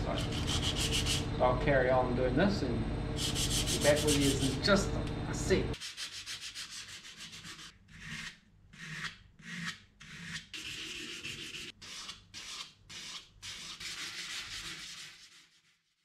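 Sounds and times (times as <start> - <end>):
sandpaper rubbing by hand: 0.2 - 1.3, 3.2 - 4.6, 5.8 - 16.0.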